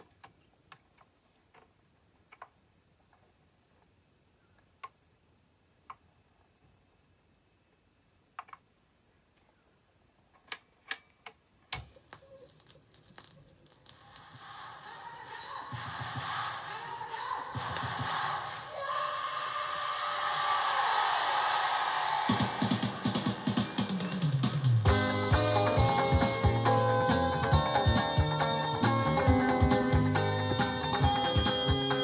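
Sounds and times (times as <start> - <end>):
record groove crackle: 11.8 - 20.0, 21.2 - 32.0
music: 14.4 - 18.8, 21.1 - 32.0.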